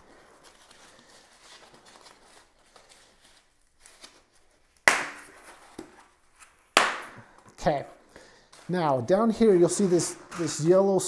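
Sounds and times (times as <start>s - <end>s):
foam packaging rustling: 0.0s - 6.6s.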